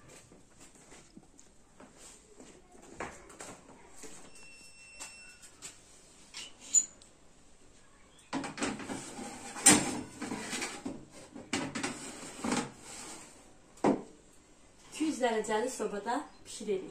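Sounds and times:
metal tray scraping on oven rack: 8.8s - 10.8s.

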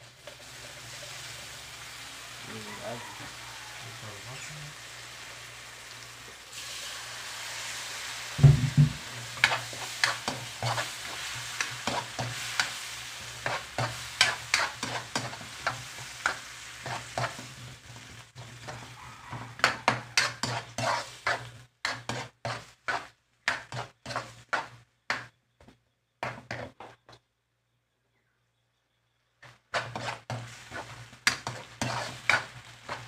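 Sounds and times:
frying sizzle: 0.0s - 25.3s, 29.4s - 33.0s
thump: 8.4s - 9.0s
metal spoon scraping wok: 8.4s - 25.2s, 26.2s - 26.7s, 29.7s - 33.0s.

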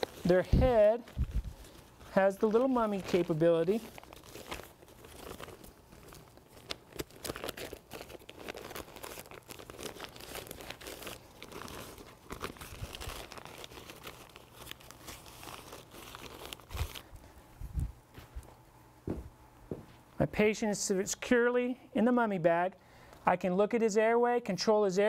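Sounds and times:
velcro ripping: 0.0s - 17.1s
foil blanket crinkling: 0.0s - 17.4s.

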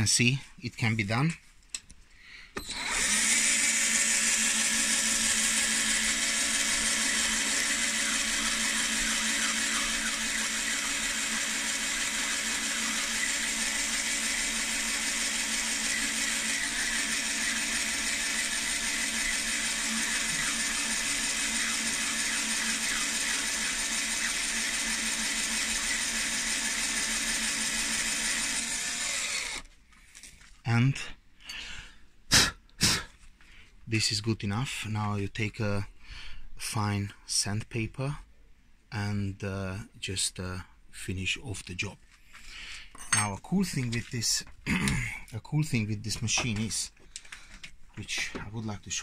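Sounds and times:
drill motor whine: 2.6s - 29.7s.

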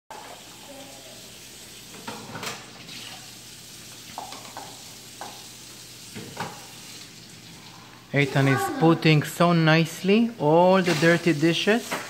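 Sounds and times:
dishes clattering on wire rack: 1.9s - 2.6s.

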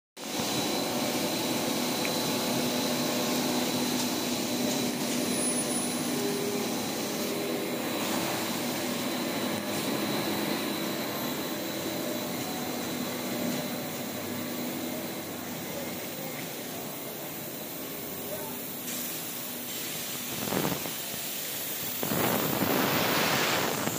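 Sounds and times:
high whine: 0.2s - 18.7s, 21.8s - 23.9s
motors and blowers humming: 0.2s - 23.9s.

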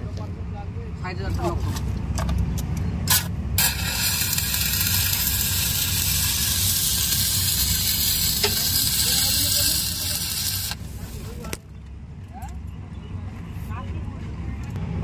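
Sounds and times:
welding arc hissing: 3.1s - 11.6s.

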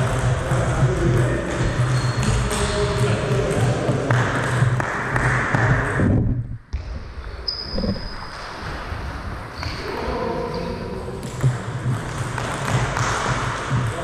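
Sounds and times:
short high squeaks: 7.5s - 8.4s
table tennis ball bouncing: 11.2s - 13.9s.

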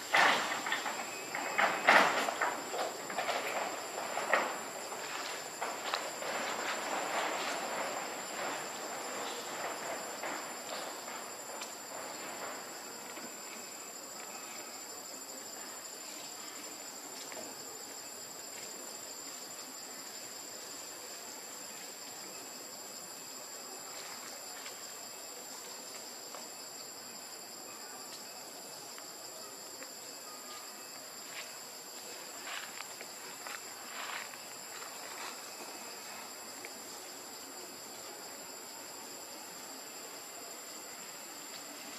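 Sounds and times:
rustling and crackling: 0.0s - 13.7s.

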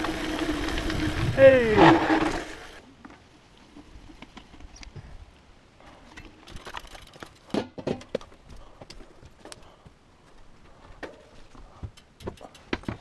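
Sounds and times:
bike handling clicks and knocks: 11.0s - 13.0s.

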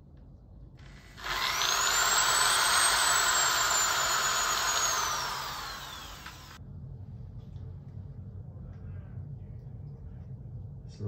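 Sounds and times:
power tool motor whine: 0.8s - 6.6s.

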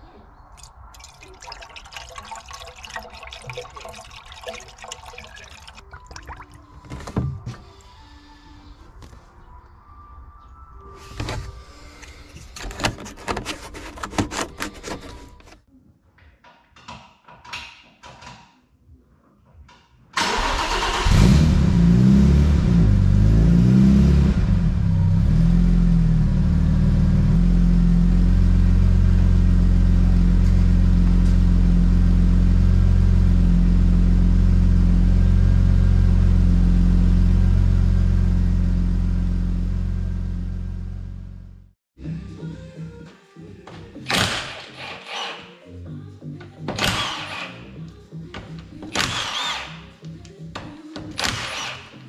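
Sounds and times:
car engine starting and idling: 20.2s - 41.6s.

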